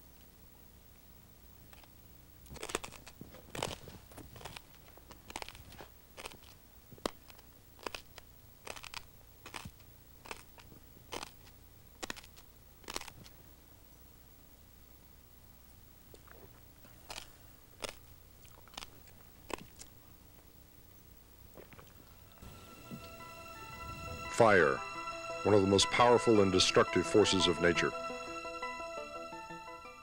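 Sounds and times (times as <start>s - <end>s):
low hum: 0.0s - 30.0s
glass crunching in mouth: 1.7s - 13.3s, 16.1s - 19.9s.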